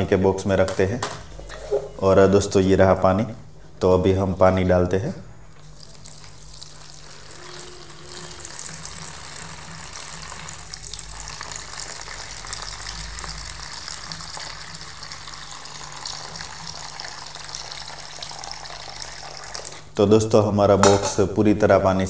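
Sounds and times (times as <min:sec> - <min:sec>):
water splashing and bubbling: 0:05.7 - 0:19.7
water pouring into plastic tub: 0:05.7 - 0:19.8.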